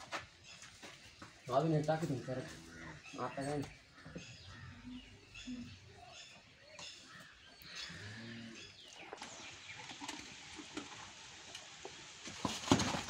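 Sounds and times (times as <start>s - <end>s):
faint bird calls: 2.1s - 9.6s.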